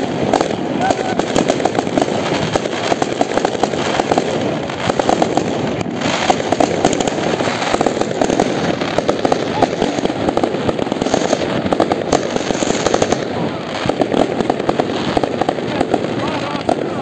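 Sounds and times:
fireworks exploding: 0.0 - 17.0.

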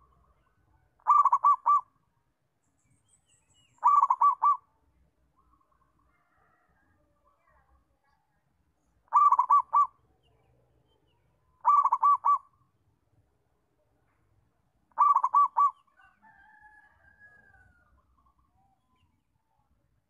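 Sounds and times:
dove cooing: 1.0 - 1.9, 3.8 - 4.6, 9.1 - 10.0, 11.6 - 12.5, 15.0 - 15.9.

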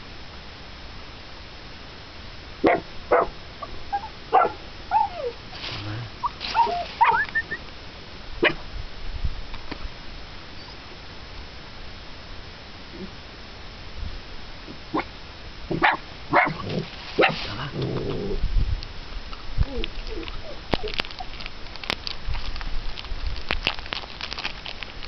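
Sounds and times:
puppy yapping: 2.6 - 5.4, 6.2 - 7.6, 15.7 - 17.5, 19.7 - 21.4
puppy whining: 3.6 - 5.4, 6.1 - 7.6, 19.7 - 21.4.

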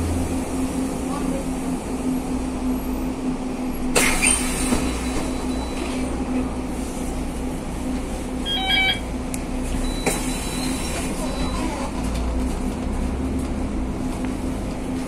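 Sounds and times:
bus engine and road noise: 0.0 - 15.0
electronic beeps: 8.4 - 9.1.

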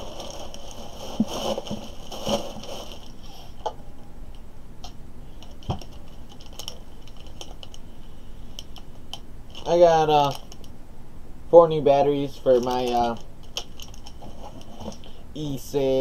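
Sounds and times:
plastic packaging crinkling: 0.0 - 3.6, 5.4 - 7.9, 9.5 - 10.7, 12.4 - 15.1.

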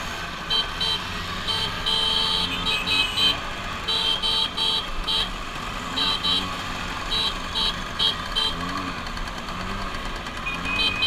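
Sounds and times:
scooter engines running: 0.0 - 11.0
scooter horns beeping: 0.4 - 9.0, 10.3 - 11.0.

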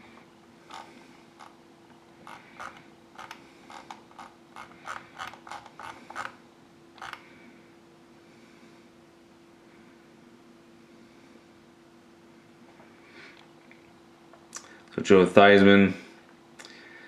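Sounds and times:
faint hum: 0.0 - 17.0
computer mouse clicking: 7.0 - 7.2.

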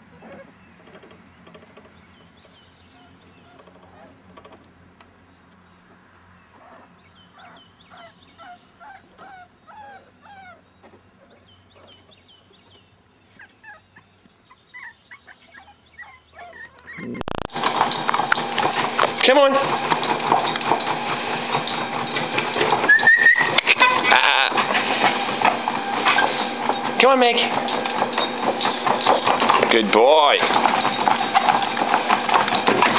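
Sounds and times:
puppies whimpering and yelping: 0.0 - 1.1, 2.9 - 4.4, 6.5 - 12.2, 13.2 - 17.5, 22.8 - 24.1.

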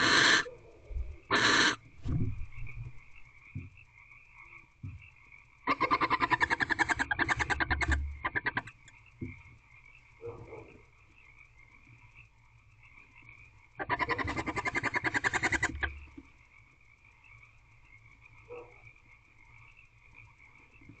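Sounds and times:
owls chittering: 0.0 - 0.6, 1.2 - 1.8, 5.6 - 9.3, 13.8 - 16.3
soft owl calls: 0.0 - 1.9, 5.7 - 8.9, 13.8 - 16.2.

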